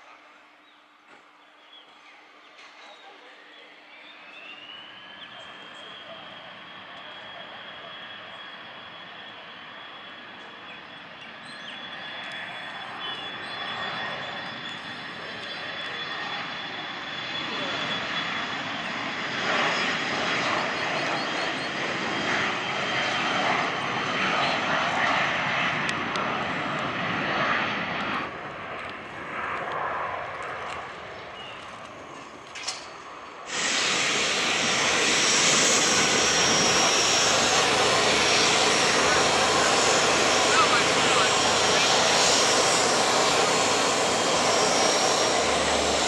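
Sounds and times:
jet engines running: 3.5 - 46.0
steady noise with high whistle: 4.0 - 16.1.

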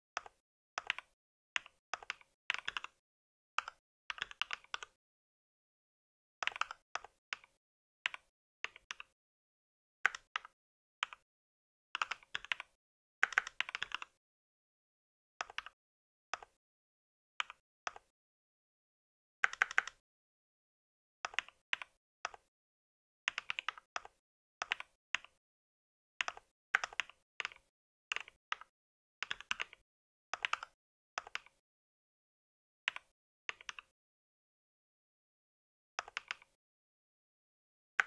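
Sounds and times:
typing on a mechanical keyboard: 0.2 - 3.0, 3.6 - 5.0, 6.4 - 9.2, 10.1 - 11.2, 12.0 - 14.2, 15.4 - 15.8, 19.4 - 20.0, 23.3 - 25.4, 26.2 - 29.8, 30.4 - 31.6.

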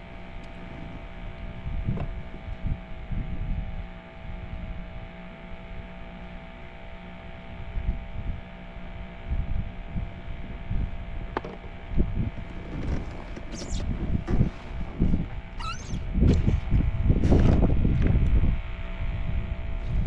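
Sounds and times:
low rumbling: 9.3 - 20.0
electric motor humming: 10.2 - 20.0.

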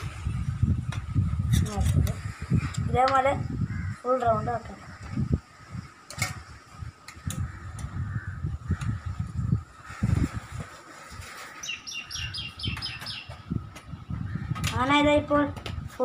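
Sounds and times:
bird chirping: 11.6 - 13.6.

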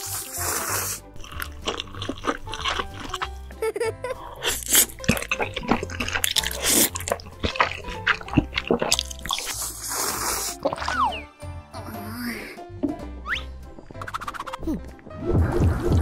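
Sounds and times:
drinking broth from a bowl: 0.0 - 11.3
wet noodle slurping: 0.0 - 11.3
background music: 0.0 - 16.0.

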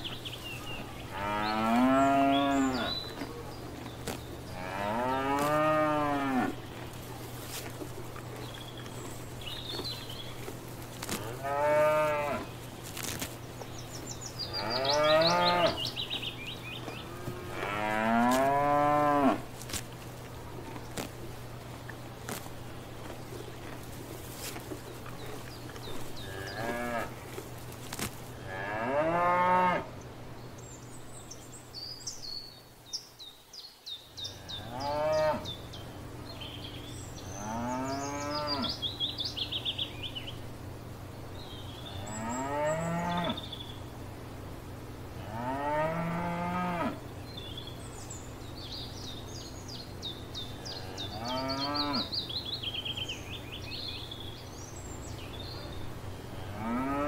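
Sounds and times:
birds chirping and trilling: 0.0 - 44.5, 45.1 - 57.0
cows mooing: 1.1 - 3.2, 4.5 - 6.6, 11.1 - 12.5, 14.5 - 15.9, 16.8 - 19.5, 25.8 - 27.2, 28.5 - 29.9, 34.4 - 35.5, 37.4 - 38.8, 45.2 - 47.0, 50.7 - 52.1, 56.4 - 57.0.

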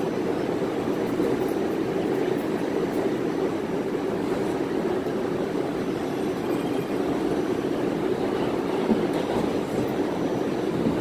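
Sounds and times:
subway train wheels rumbling: 0.0 - 11.0.

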